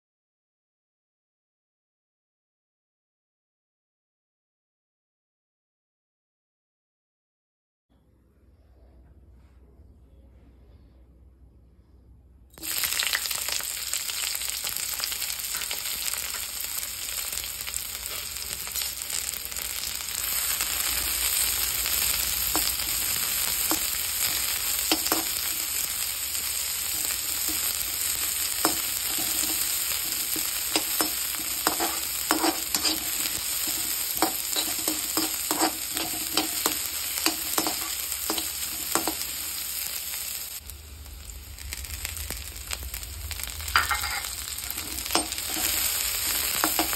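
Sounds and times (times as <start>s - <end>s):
onions sizzling in hot oil: 12.6s - 46.9s
metal spatula scraping a pan: 20.1s - 39.9s, 43.6s - 46.9s.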